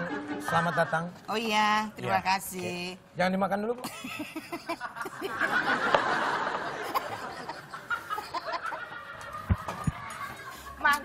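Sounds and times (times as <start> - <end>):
audience laughter: 4.2 - 10.9.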